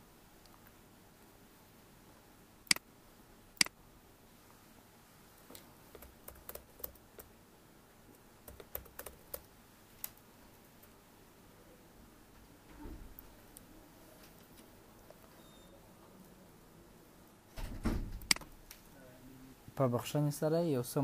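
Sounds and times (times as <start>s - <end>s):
computer mouse clicks: 5.5s - 7.3s, 8.5s - 10.2s
keyboard typing: 5.9s - 7.3s, 8.4s - 9.5s.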